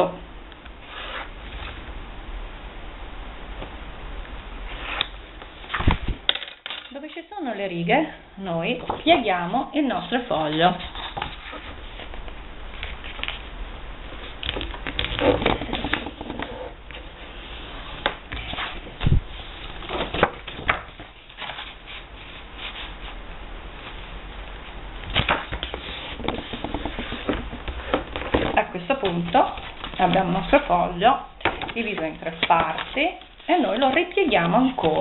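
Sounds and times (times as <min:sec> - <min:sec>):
paper rustling and crinkling: 0:10.0 - 0:13.4, 0:17.8 - 0:23.2, 0:25.1 - 0:30.7, 0:31.7 - 0:35.0.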